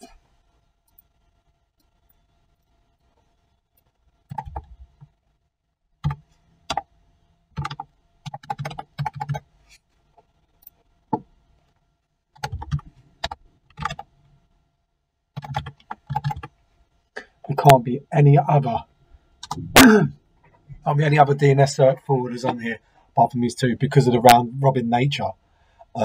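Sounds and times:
computer keyboard typing: 4.3s - 5.2s, 6.0s - 6.9s, 7.6s - 9.5s, 12.4s - 14.1s, 15.4s - 16.5s, 19.4s - 19.6s.

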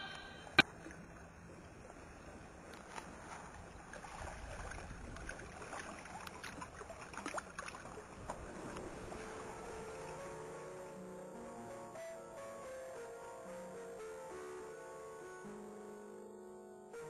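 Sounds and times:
soft water wash: 0.0s - 11.0s.

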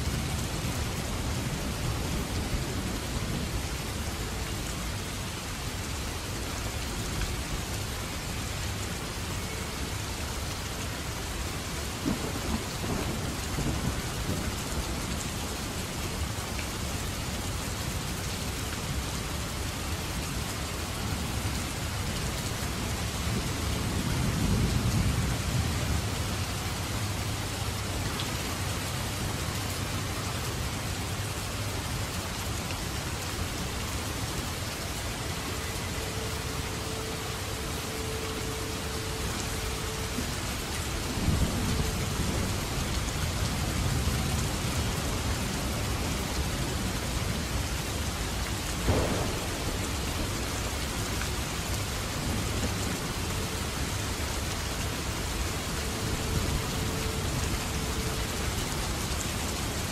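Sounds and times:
heavy rain falling: 0.0s - 59.9s
low rolls of thunder: 11.9s - 15.2s, 48.7s - 53.4s.

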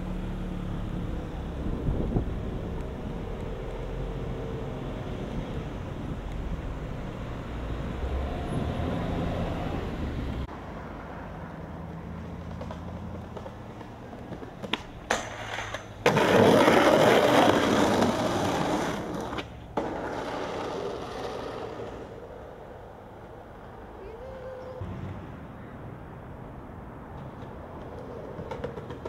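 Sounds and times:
skateboard wheels rolling: 11.6s - 25.2s, 27.1s - 29.0s
skateboard grinding metal rail: 15.1s - 22.4s.

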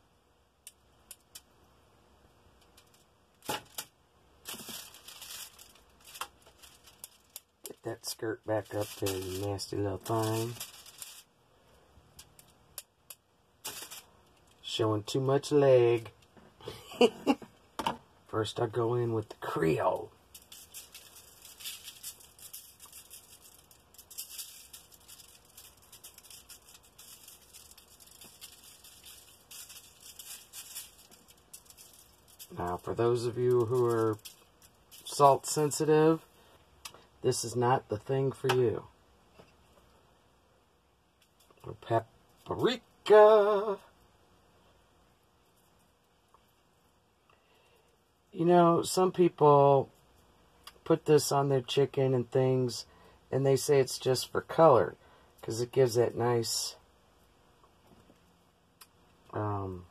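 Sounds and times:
seasoning shaker rattling: 2.6s - 11.3s, 12.0s - 14.7s, 19.4s - 35.8s
aluminium foil crinkling: 2.6s - 11.4s, 12.1s - 14.8s, 19.2s - 35.9s.

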